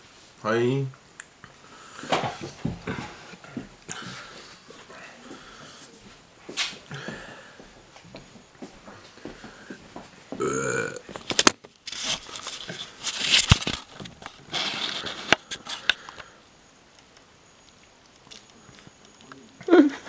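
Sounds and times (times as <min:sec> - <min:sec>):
breathy hissing noise: 0:01.4 - 0:08.0, 0:08.8 - 0:11.0, 0:11.9 - 0:17.6
person burping: 0:10.4 - 0:11.1.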